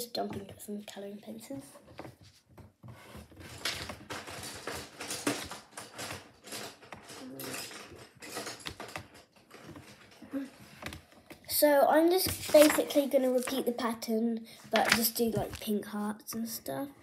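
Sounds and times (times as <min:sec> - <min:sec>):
pencils clicking and rattling: 0:03.0 - 0:14.0, 0:14.7 - 0:16.5.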